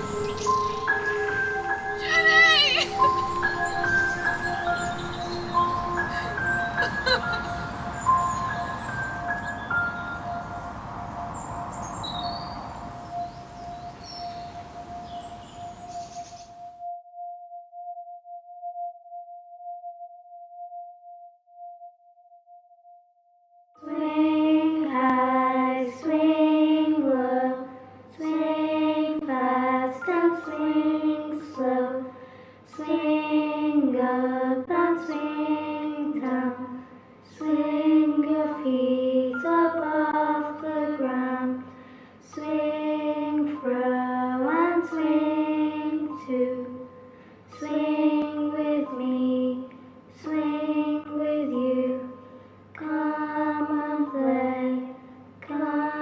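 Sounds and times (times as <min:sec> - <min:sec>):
high voice singing: 0:00.0 - 0:08.9.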